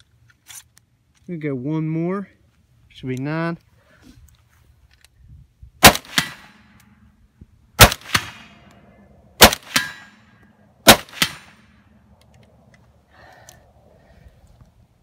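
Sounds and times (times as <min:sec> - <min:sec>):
suppressed rifle shots: 0:05.8 - 0:06.8, 0:07.8 - 0:08.8, 0:09.4 - 0:10.2, 0:10.8 - 0:11.8.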